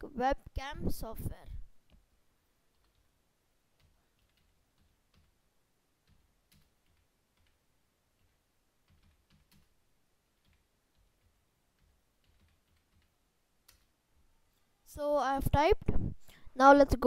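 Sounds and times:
computer keyboard typing: 2.7 - 3.1, 3.8 - 5.4, 6.0 - 7.6, 8.2 - 9.8, 10.4 - 13.9.

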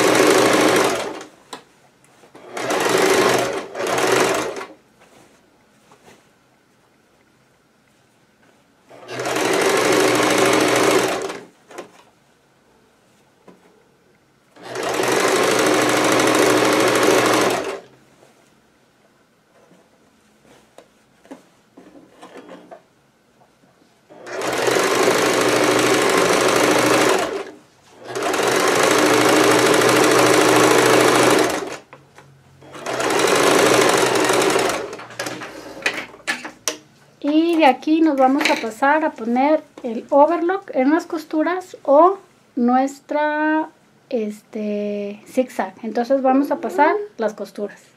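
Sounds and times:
electric sewing machine stitching: 0.0 - 1.3, 2.4 - 4.8, 8.9 - 11.9, 14.6 - 17.9, 24.1 - 31.9, 32.6 - 36.0.

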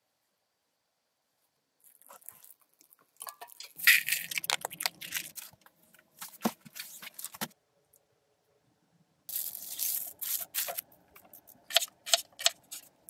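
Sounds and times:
rustling handling sounds: 1.8 - 7.6, 9.3 - 13.0.

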